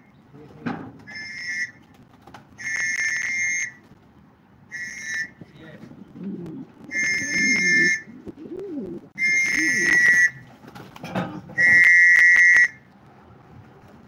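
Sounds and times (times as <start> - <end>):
hand whistle blasts: 2.6 - 3.8, 4.7 - 5.4, 6.9 - 8.1, 9.2 - 10.4, 11.6 - 12.8.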